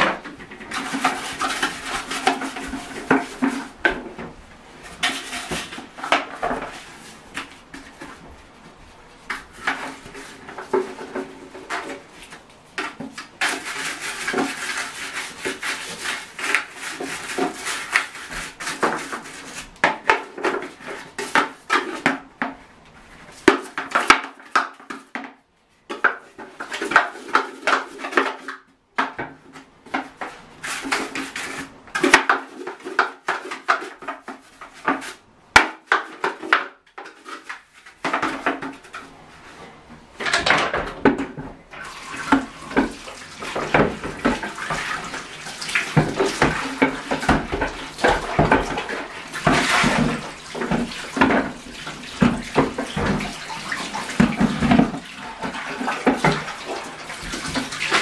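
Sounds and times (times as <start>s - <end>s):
plastic rubbing: 0.0s - 22.5s.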